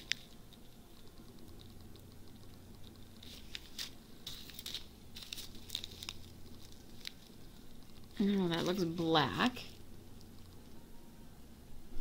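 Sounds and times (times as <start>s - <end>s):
plastic bags crinkling and clicking: 3.2s - 7.4s.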